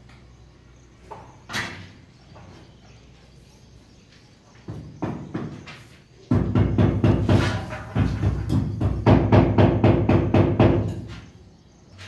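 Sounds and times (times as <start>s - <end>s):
rapid repeated knocking: 4.7s - 5.6s, 6.3s - 11.0s.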